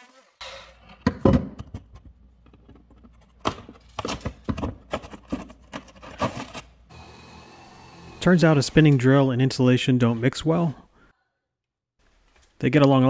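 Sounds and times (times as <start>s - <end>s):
drywall cracking and scraping: 3.0s - 6.7s.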